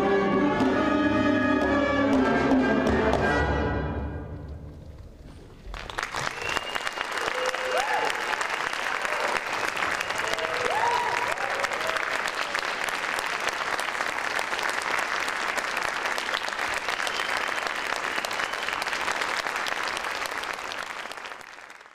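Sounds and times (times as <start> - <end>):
audience applauding: 5.4 - 21.9
crowd cheering: 5.7 - 21.9.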